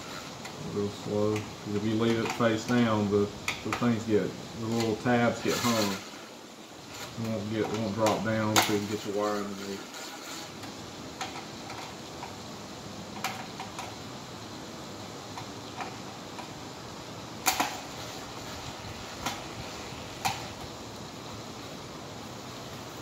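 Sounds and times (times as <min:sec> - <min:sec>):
steady hiss: 0:00.0 - 0:23.0
light clicks and taps: 0:01.3 - 0:02.8.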